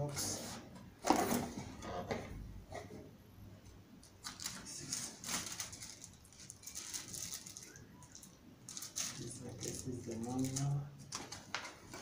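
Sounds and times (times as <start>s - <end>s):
cardboard box and packing rustling: 4.2s - 7.7s.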